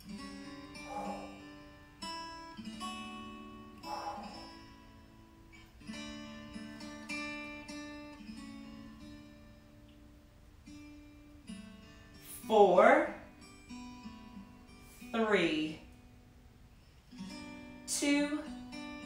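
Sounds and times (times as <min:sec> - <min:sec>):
acoustic guitar music: 0:00.0 - 0:19.0.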